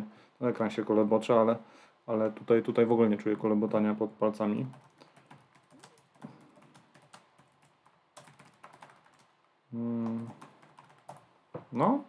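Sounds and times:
typing on laptop keyboard: 0:04.6 - 0:09.3, 0:10.0 - 0:11.3
man humming low: 0:09.7 - 0:10.3.

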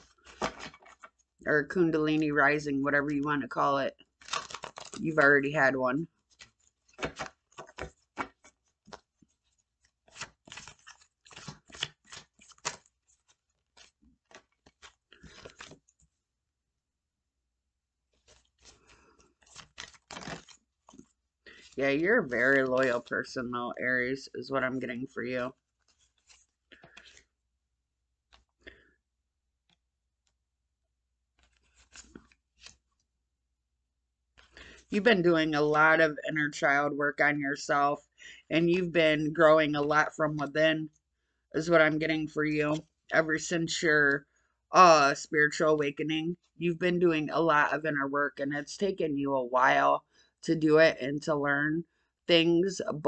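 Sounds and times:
cards being shuffled: 0:00.0 - 0:01.3, 0:04.2 - 0:05.2, 0:06.2 - 0:16.1, 0:18.1 - 0:23.1, 0:25.7 - 0:27.3, 0:28.2 - 0:28.9, 0:31.3 - 0:33.0.

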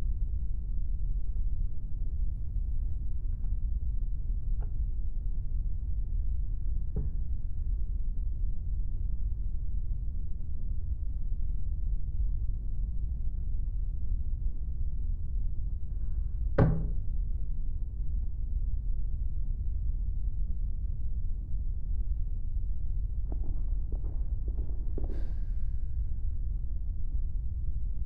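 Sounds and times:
steady low rumble: 0:00.0 - 0:28.0
sharp knock on a table: 0:16.6 - 0:17.0.

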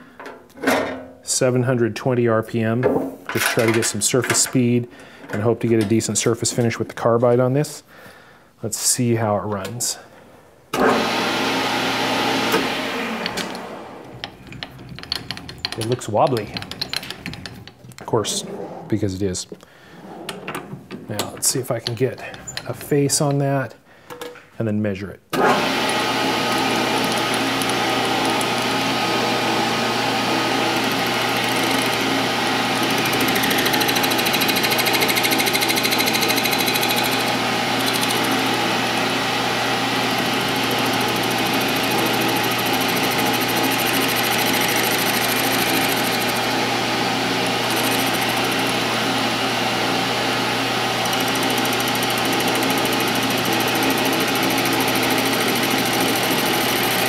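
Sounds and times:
metal lathe running: 0:10.9 - 0:17.8, 0:25.5 - 0:57.0
tool cutting steel: 0:13.2 - 0:17.8, 0:25.5 - 0:57.0.

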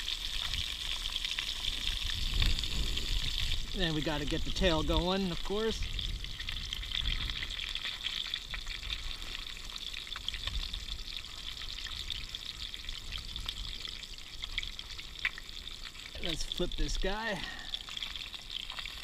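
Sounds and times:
fish sizzling in oil: 0:00.0 - 0:19.0.

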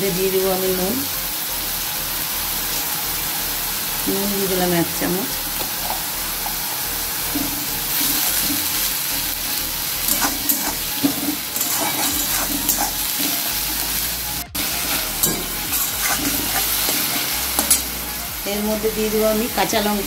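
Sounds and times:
onions sizzling in oil: 0:00.0 - 0:20.0
metal spatula scraping pan: 0:10.0 - 0:13.9, 0:14.6 - 0:18.0.

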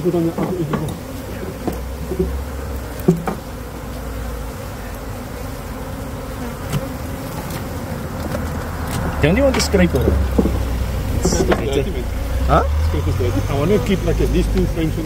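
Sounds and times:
honey bees buzzing: 0:00.0 - 0:15.0
hive tool knocking: 0:00.2 - 0:03.6, 0:06.7 - 0:12.2.

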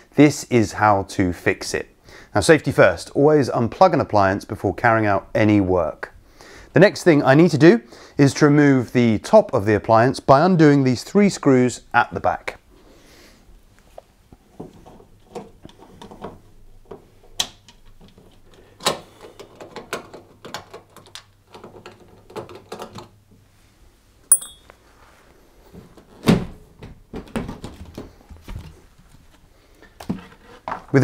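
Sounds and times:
metallic clink: 0:24.3 - 0:24.8.

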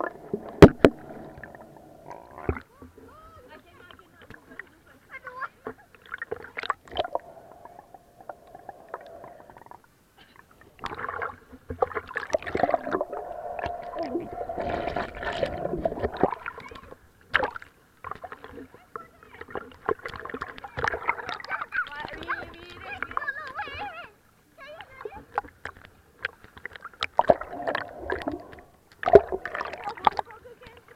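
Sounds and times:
muffled underwater bubbling: 0:00.0 - 0:02.7, 0:06.3 - 0:09.9, 0:12.0 - 0:17.0, 0:27.1 - 0:30.2
water splashing and sloshing: 0:00.0 - 0:23.9, 0:24.6 - 0:30.9.

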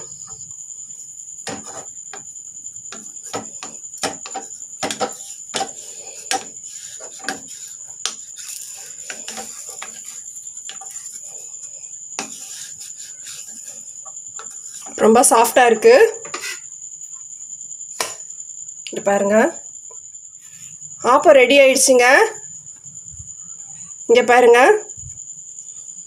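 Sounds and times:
wooden spatula scraping metal pan: 0:01.4 - 0:02.3, 0:02.9 - 0:16.7.

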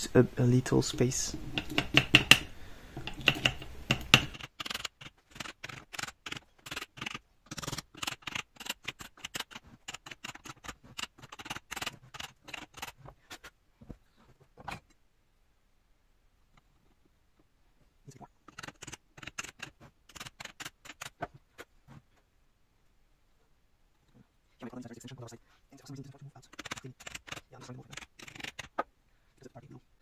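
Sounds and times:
plastic tapping and rattling: 0:01.4 - 0:13.0.

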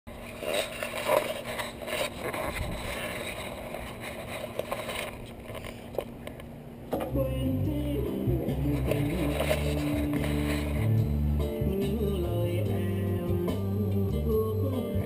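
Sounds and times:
camera handling rubbing and knocks: 0:00.2 - 0:06.5.

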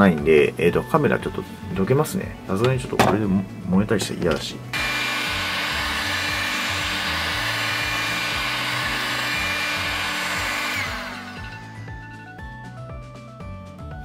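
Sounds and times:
background music: 0:00.0 - 0:14.0
heat gun blowing air: 0:04.8 - 0:11.8.

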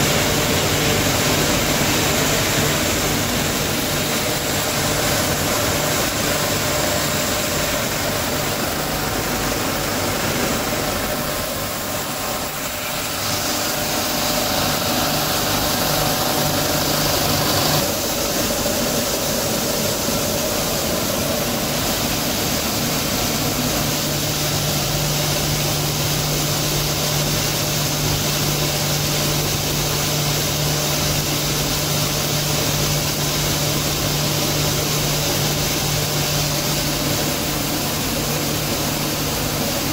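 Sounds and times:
crushing machinery running: 0:00.0 - 0:39.9.

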